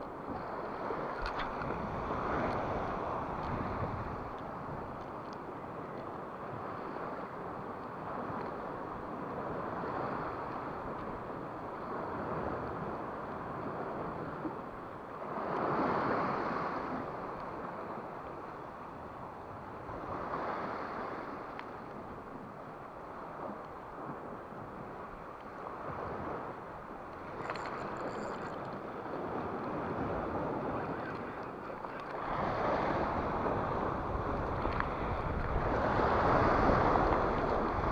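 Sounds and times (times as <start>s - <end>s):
wind on microphone: 0.0s - 37.9s
waves washing against rocks: 24.6s - 37.9s.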